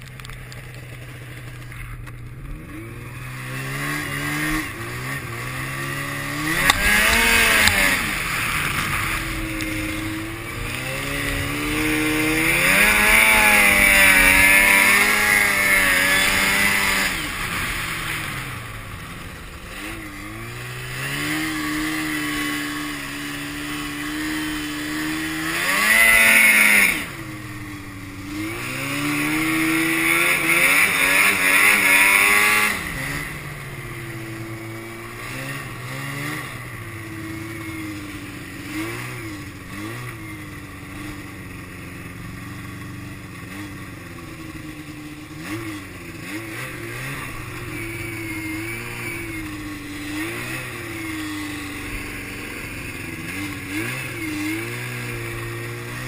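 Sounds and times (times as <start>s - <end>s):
snowmobile engine revving: 0.5s - 56.0s.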